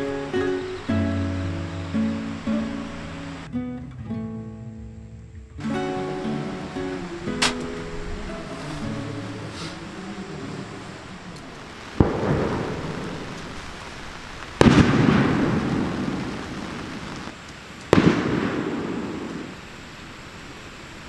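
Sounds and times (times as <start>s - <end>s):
steady rain hissing: 0.0s - 21.0s
close thunderclaps: 11.6s - 19.6s.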